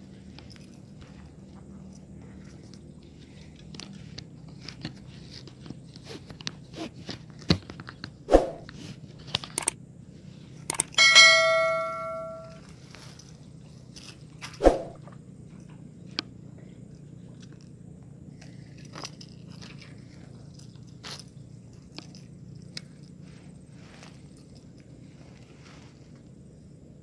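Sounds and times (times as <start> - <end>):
sharp thumps: 8.3 - 8.7, 14.6 - 15.0
notification bell ding: 11.0 - 12.6.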